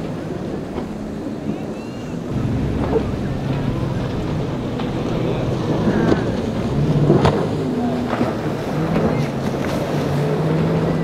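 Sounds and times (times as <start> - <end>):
outboard engines running: 2.1 - 11.0
wind noise on microphone: 2.3 - 9.2.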